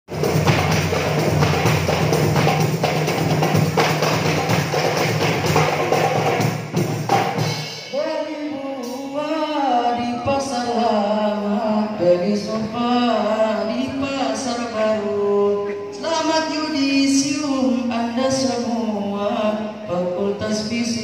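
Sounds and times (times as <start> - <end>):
frame drums and barrel drum: 0.1 - 9.1.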